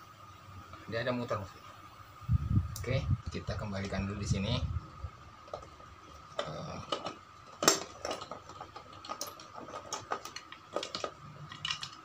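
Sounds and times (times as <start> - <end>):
plastic parts clicking and knocking: 6.4 - 12.0.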